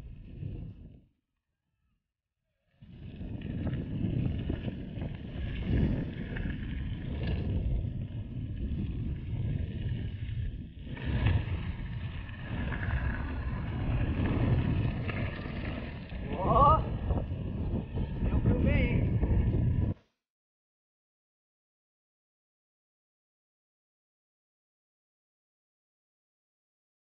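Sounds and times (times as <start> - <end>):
bike tyres rumbling on dirt road: 0.0 - 1.0, 2.7 - 20.0
wind buffeting microphone: 0.0 - 1.0, 2.8 - 20.0.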